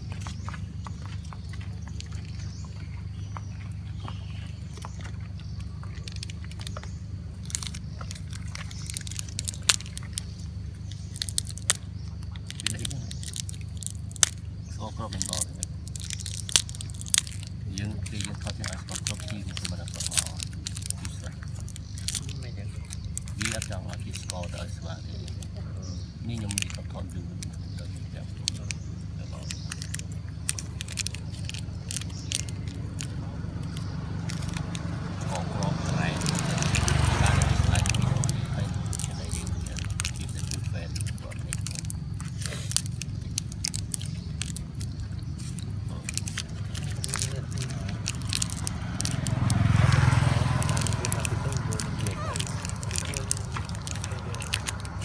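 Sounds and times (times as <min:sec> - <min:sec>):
monkey chewing with crunching clicks: 0:00.0 - 0:55.0
steady low background hum: 0:00.0 - 0:55.0
steady low rumble: 0:00.0 - 0:55.0
plastic wrappers crackling: 0:04.6 - 0:55.0.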